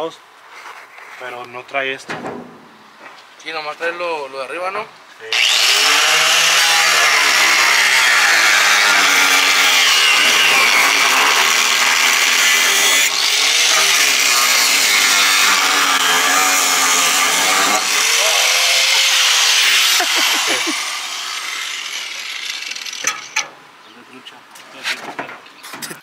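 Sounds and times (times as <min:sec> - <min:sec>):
angle grinder cutting sheet metal: 0:05.3 - 0:23.4.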